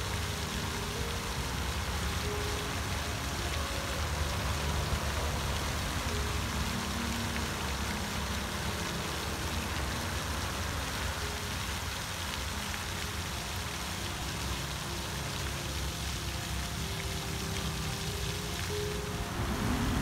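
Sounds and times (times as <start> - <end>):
fountain water splashing onto pond: 0.0 - 20.0
low rumble: 19.0 - 20.0.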